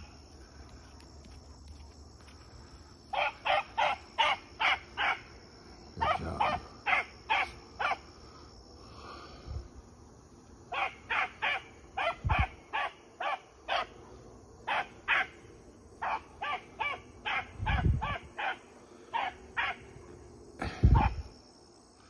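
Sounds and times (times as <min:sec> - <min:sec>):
hound barking: 0:03.1 - 0:05.3, 0:06.0 - 0:08.1, 0:10.7 - 0:15.4, 0:16.0 - 0:20.1.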